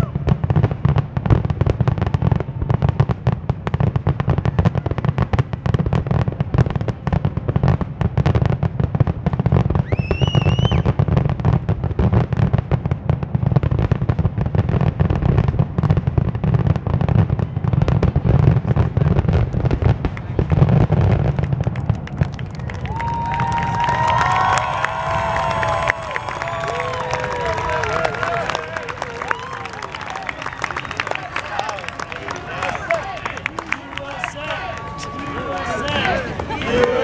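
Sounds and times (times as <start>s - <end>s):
fireworks bangs and crackles: 0.0s - 37.0s
rising firework whistle: 9.7s - 11.0s, 22.7s - 32.4s.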